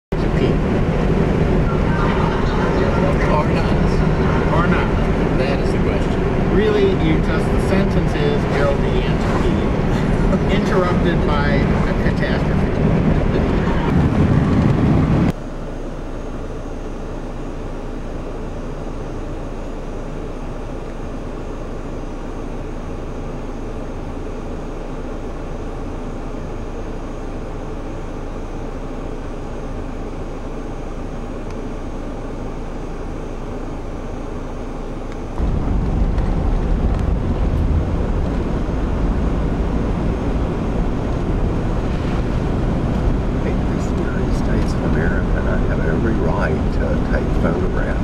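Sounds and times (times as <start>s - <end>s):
steady outdoor hiss: 0.2s - 13.6s, 23.2s - 48.0s
car driving heard from inside: 0.2s - 15.4s, 35.1s - 48.0s.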